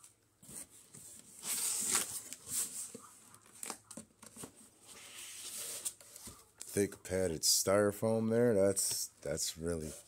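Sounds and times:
cardboard and foam rustling: 0.4 - 6.4.

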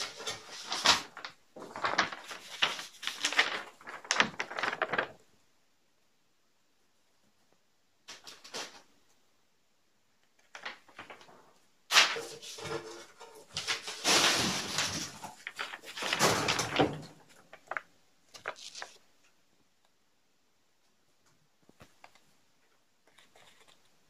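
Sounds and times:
paper rustling: 0.0 - 5.3, 8.1 - 8.9, 10.4 - 19.2, 23.0 - 24.0.

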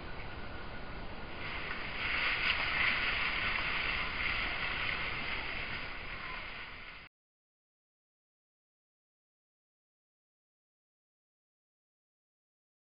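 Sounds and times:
forest background hiss: 0.0 - 7.1.

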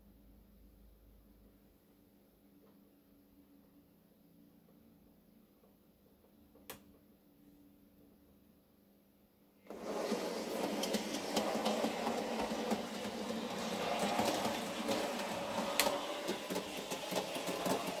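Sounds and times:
wheels clicking over track: 9.7 - 18.0.

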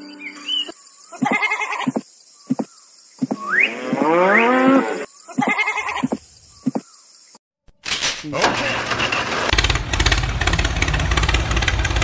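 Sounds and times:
cattle mooing: 3.6 - 5.1.

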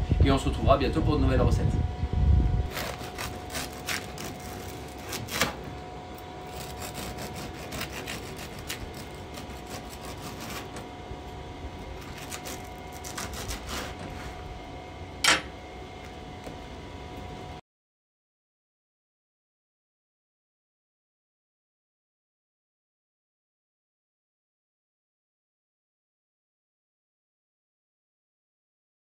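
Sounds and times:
bread knife sawing crusty loaf: 2.7 - 5.7, 6.4 - 11.0, 11.8 - 14.6.

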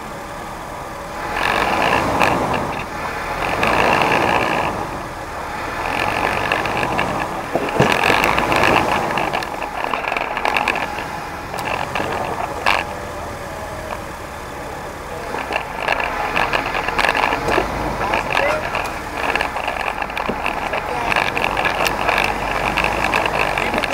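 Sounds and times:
off-road vehicle engine: 0.0 - 23.9.

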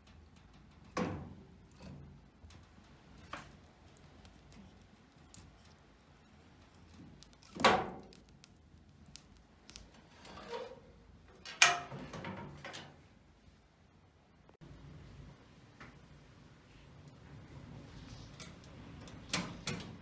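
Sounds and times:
wood fire crackling: 0.0 - 11.3
metal stove door clanks: 11.4 - 12.9.

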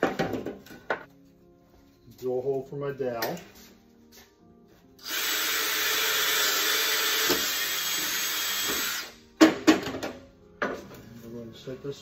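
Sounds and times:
cordless drill boring wood: 5.0 - 9.2.

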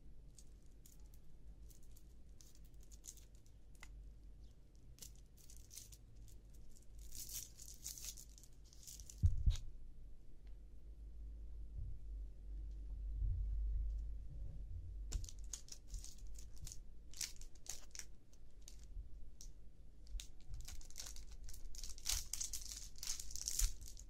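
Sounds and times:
plastic wrapper crinkling: 0.4 - 3.9, 5.0 - 9.6, 15.1 - 24.0.

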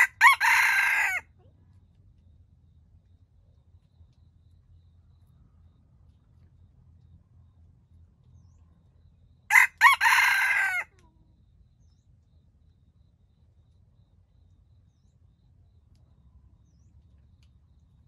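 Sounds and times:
rooster crowing: 0.0 - 1.3, 9.5 - 10.9.

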